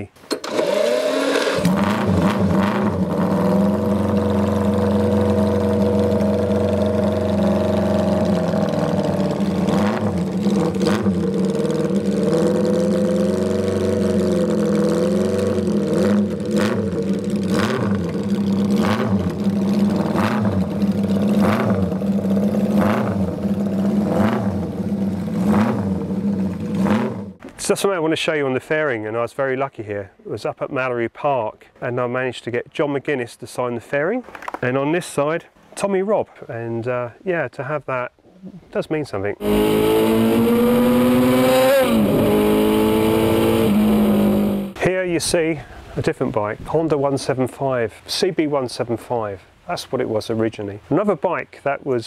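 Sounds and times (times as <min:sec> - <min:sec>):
motorcycle engine revving: 0:00.4 - 0:27.4, 0:39.4 - 0:44.8
motorcycle engine idling: 0:02.9 - 0:27.4.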